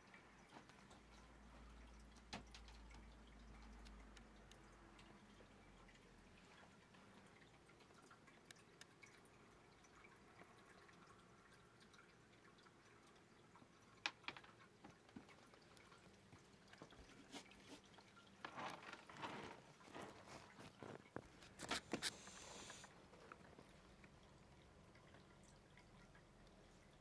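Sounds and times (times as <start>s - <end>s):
soft rustling: 16.8s - 23.7s.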